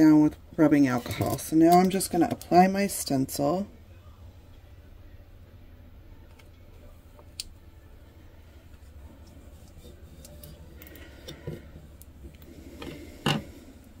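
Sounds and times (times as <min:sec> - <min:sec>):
tape rubbing and rustling: 0:08.7 - 0:13.5.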